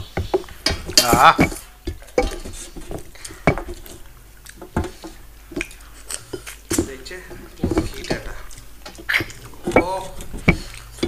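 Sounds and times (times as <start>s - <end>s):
fingers tapping on steel plates: 0.0s - 11.0s
wet sucking and smacking: 3.2s - 6.7s, 7.4s - 11.0s.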